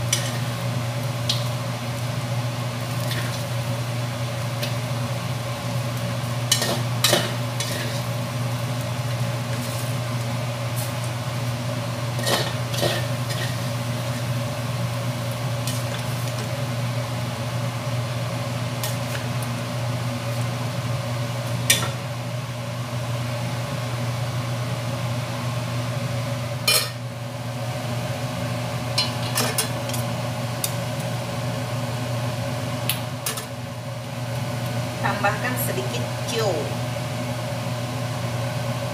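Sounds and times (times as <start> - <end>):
food sizzling in a wok: 0.0 - 38.9
metal utensils clinking on pots: 26.7 - 27.0.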